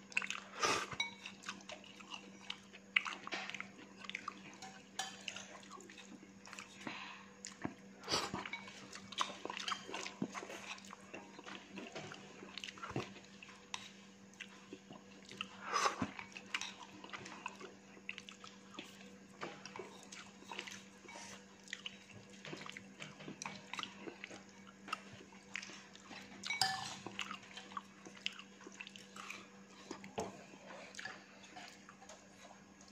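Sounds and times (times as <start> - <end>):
person chewing: 14.3 - 19.1, 21.6 - 30.2.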